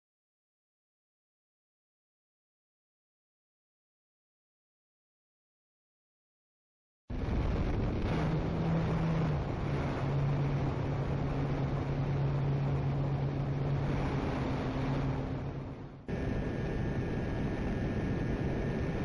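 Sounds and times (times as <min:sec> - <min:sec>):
propellers humming: 0:07.1 - 0:19.0
thin high whine: 0:09.8 - 0:19.0.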